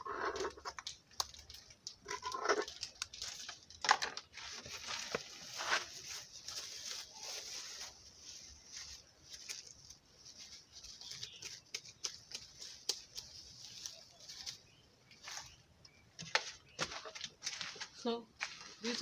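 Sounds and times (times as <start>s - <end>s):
plastic bag rustling: 1.4s - 11.6s.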